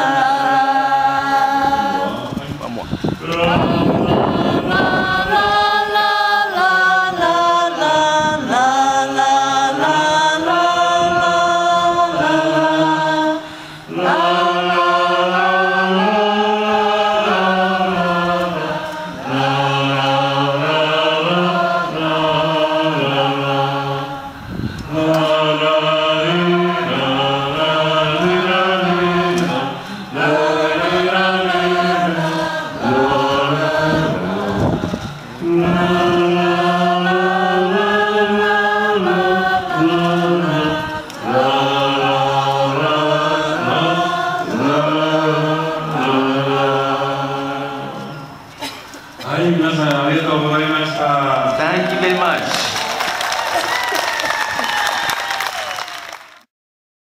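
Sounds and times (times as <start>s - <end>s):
group of voices chanting: 3.2s - 48.0s.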